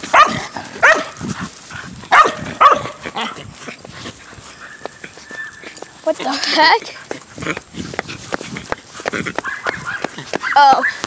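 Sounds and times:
dog barking: 0.1s - 1.2s, 2.1s - 3.4s, 9.4s - 11.0s.

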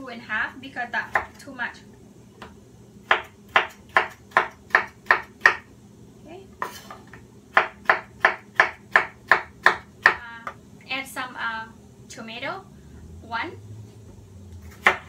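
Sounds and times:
knife chopping on wooden board: 3.1s - 5.6s, 7.5s - 10.6s, 14.6s - 15.0s.

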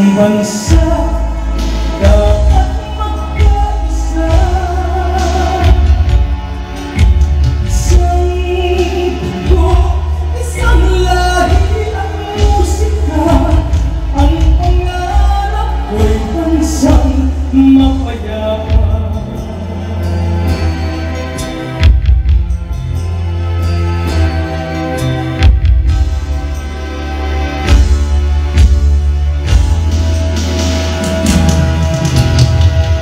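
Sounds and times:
woman singing into a microphone: 0.0s - 6.1s, 7.7s - 20.6s
backing music with steady bass: 0.0s - 33.0s.

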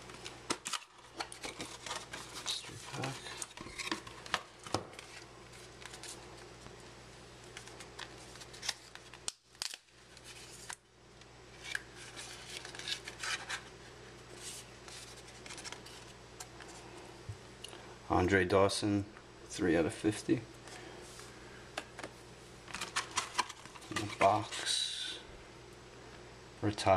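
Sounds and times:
paper rustling and scraping: 0.1s - 6.2s, 11.6s - 13.7s, 14.3s - 16.2s, 22.7s - 24.7s.

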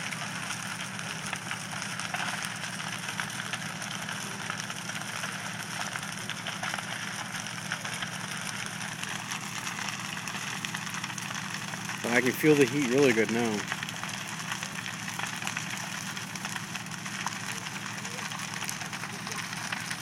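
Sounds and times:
house fire crackling: 0.0s - 20.0s.

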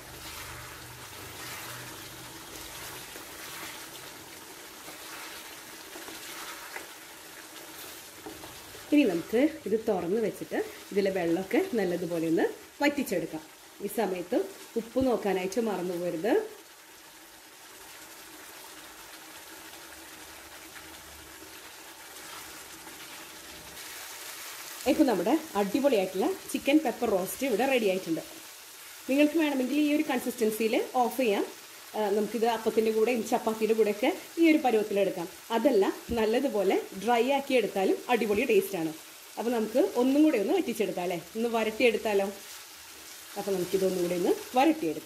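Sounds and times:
spatula stirring: 0.0s - 10.2s
chicken sizzling in a pan: 0.0s - 45.0s.

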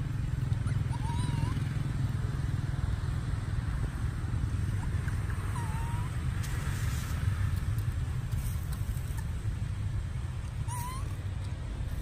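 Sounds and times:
steady low rumble: 0.0s - 12.0s
baby monkey squeak: 0.7s - 1.6s, 5.5s - 6.1s, 10.6s - 11.2s.

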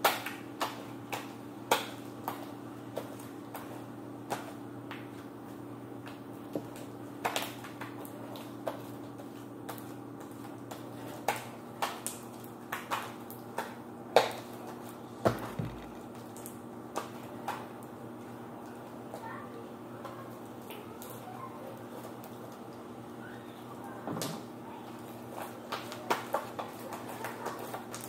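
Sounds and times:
taps and knocks on a tabletop: 15.3s - 16.0s.

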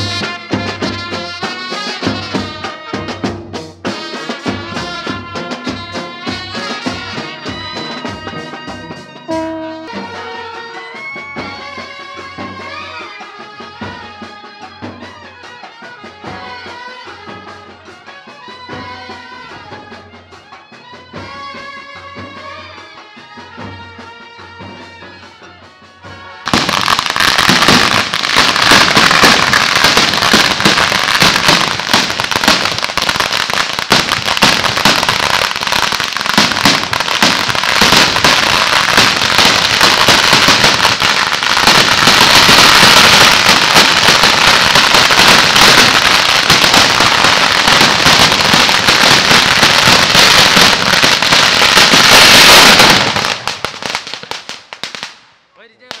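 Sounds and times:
firecrackers crackling: 0.0s - 9.4s, 26.1s - 56.0s.

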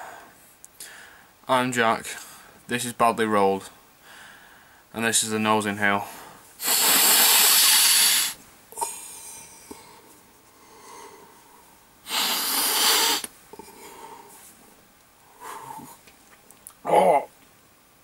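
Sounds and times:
faint sniffles: 6.6s - 8.4s, 12.1s - 13.3s
man sniffing hard: 6.6s - 8.4s, 12.0s - 13.3s.

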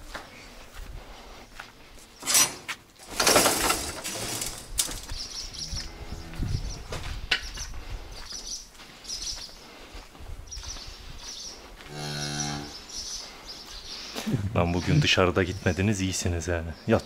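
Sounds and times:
plastic tarp rustling and flapping: 3.0s - 5.1s.

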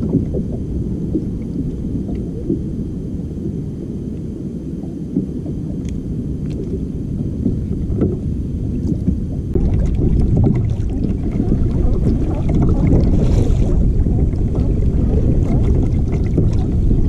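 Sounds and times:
wind buffeting microphone: 6.6s - 17.0s.

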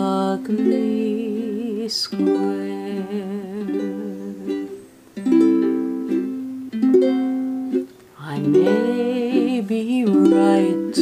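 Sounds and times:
woman singing: 0.0s - 5.7s, 8.2s - 11.0s
strummed ukulele chords: 0.0s - 11.0s.

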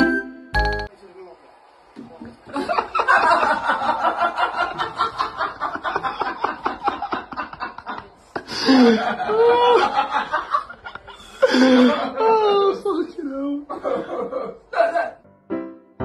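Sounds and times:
person giggling: 6.3s - 10.0s.

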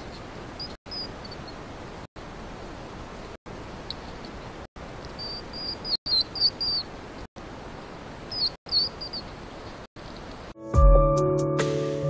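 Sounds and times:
hedgehogs squeaking: 0.6s - 1.6s, 5.1s - 6.9s, 8.3s - 9.3s.

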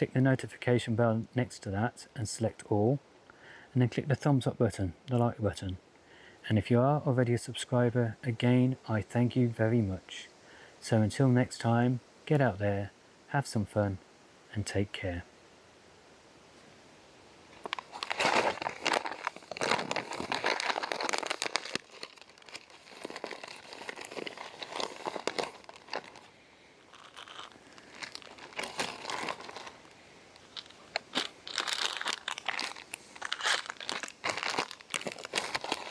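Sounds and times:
plastic and foil crinkling: 17.6s - 35.9s.

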